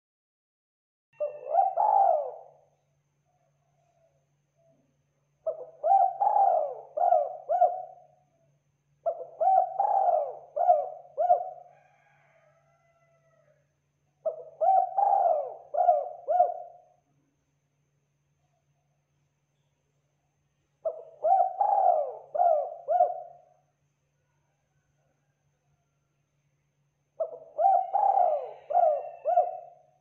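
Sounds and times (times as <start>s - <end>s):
dove cooing: 1.2s - 2.6s, 5.4s - 8.2s, 9.0s - 12.2s, 14.2s - 16.9s, 20.8s - 23.5s, 27.2s - 29.9s.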